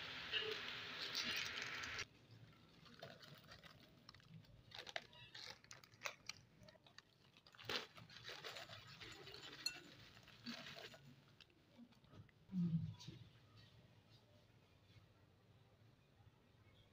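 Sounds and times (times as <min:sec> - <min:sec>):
crunchy snacks dropping into glass bowl: 0:02.8 - 0:11.0.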